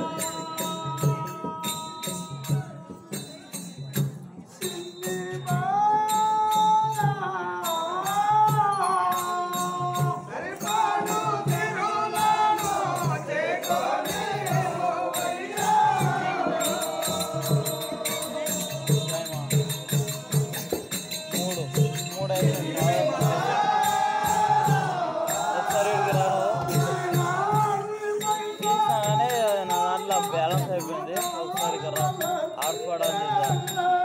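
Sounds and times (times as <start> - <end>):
sharp percussion strokes: 0.0 - 34.0
steady drum beat: 0.0 - 34.0
person singing ornamented melody: 20.3 - 34.0.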